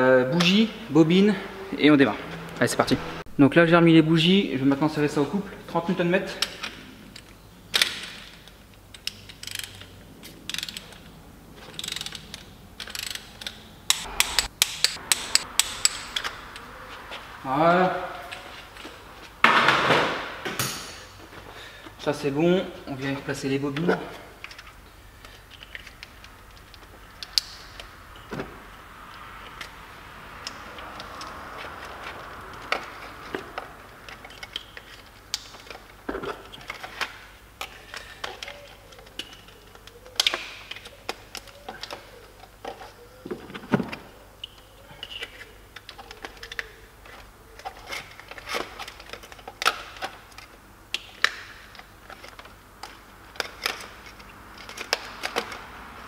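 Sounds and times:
engine parts clicking and knocking: 45.0s - 56.0s.

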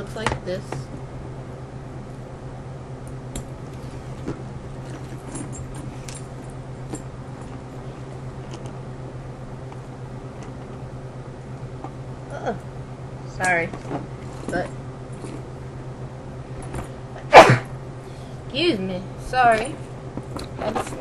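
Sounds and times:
steady low hum: 0.0s - 21.0s
metal strap hardware clinking: 3.3s - 8.8s.

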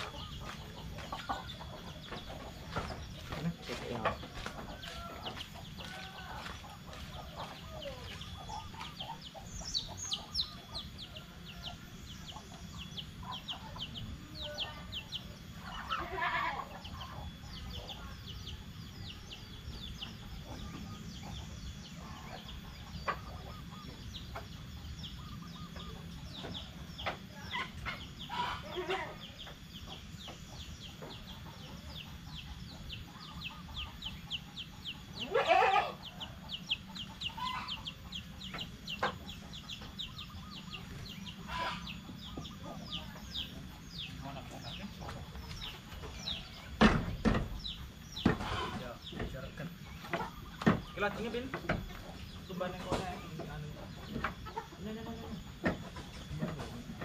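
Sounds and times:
chickens clucking: 0.0s - 57.0s.

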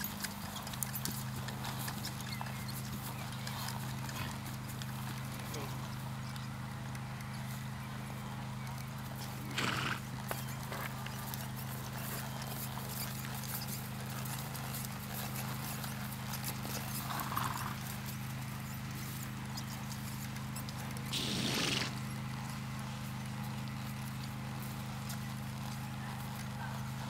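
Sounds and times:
horse hooves on dirt: 0.0s - 27.0s
short hissing burst: 21.1s - 22.0s.

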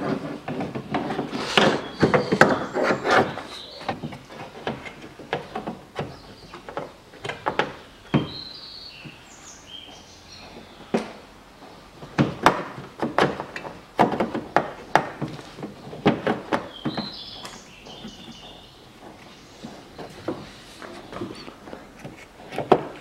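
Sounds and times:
bird chirps: 1.6s - 4.1s, 7.8s - 11.0s, 16.6s - 20.2s.

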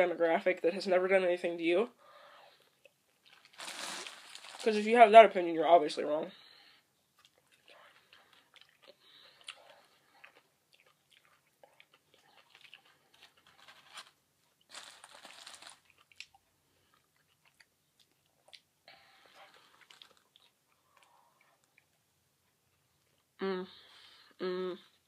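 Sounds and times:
close-up chewing: 2.3s - 4.5s, 7.0s - 23.4s.

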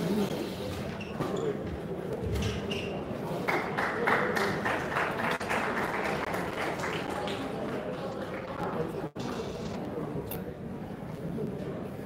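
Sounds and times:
crowd applause: 3.5s - 8.9s.

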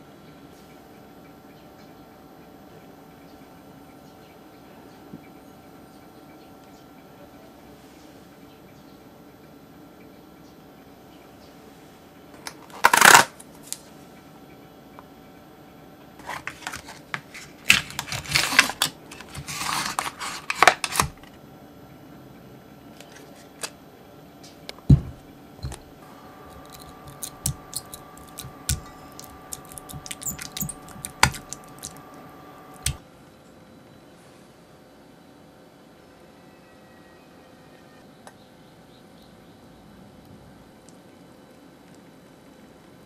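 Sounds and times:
spoon scraping plastic tub: 16.2s - 21.2s, 26.4s - 33.0s
plastic tub crinkling: 16.2s - 21.3s, 25.0s - 33.0s.

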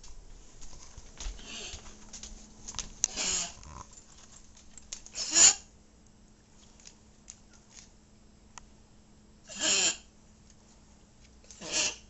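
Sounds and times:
dog coughing: 5.2s - 5.7s, 9.5s - 10.1s.

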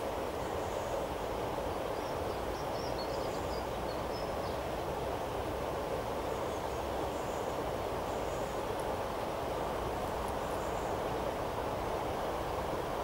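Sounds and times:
faint high bird chirps: 2.0s - 4.6s.

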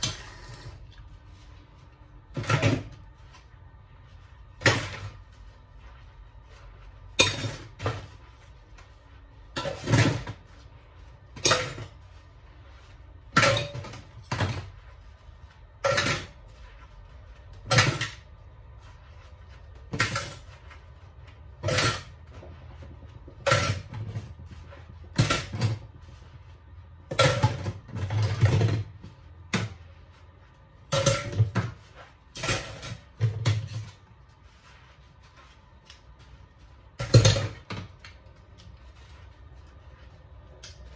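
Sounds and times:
dishes clacking and knocking: 13.3s - 14.8s, 27.1s - 29.8s.

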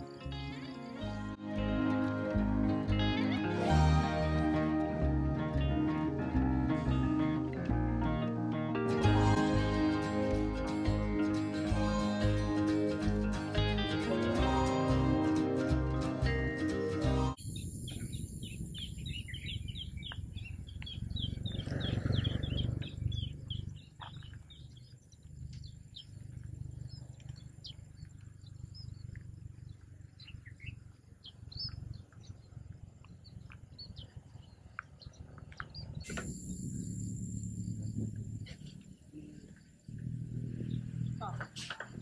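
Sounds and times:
small birds chirping: 0.0s - 3.7s, 16.7s - 42.0s
high-pitched hum: 0.0s - 21.4s, 35.8s - 41.6s
low rumble: 17.3s - 42.0s.

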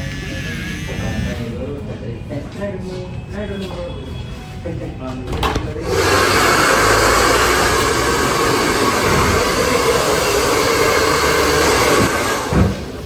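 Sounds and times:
hair dryer running: 5.8s - 12.8s.

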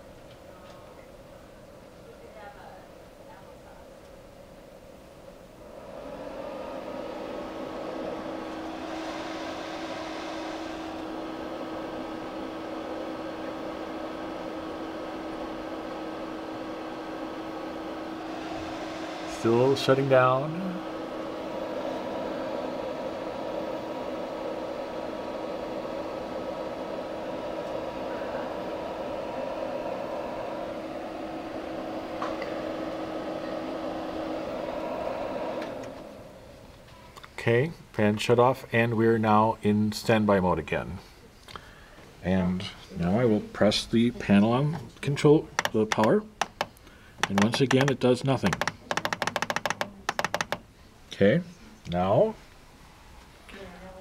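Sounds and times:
projector cooling fan whirring: 0.0s - 54.0s.

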